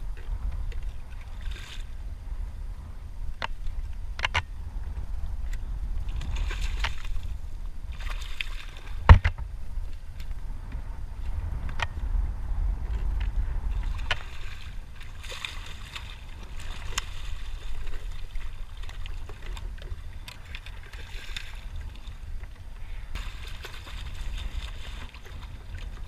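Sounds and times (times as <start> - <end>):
steady low rumble: 0.0 - 26.0
water splashing: 6.0 - 9.3, 13.7 - 22.3, 23.1 - 26.0.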